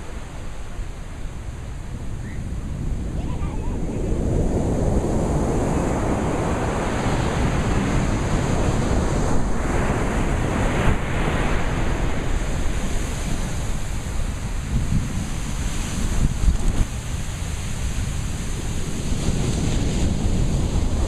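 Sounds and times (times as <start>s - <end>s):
ocean surf washing on beach: 0.0s - 21.0s
wind: 0.0s - 21.0s.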